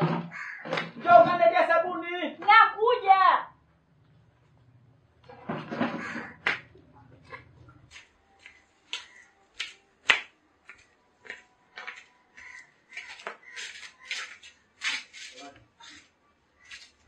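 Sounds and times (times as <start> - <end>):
flip-flops slapping on wet concrete: 7.9 - 16.0.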